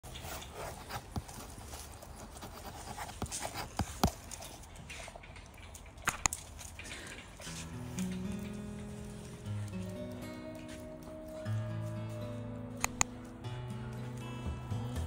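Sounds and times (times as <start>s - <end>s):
dogs tapping wire kennel panel: 3.1s - 15.0s.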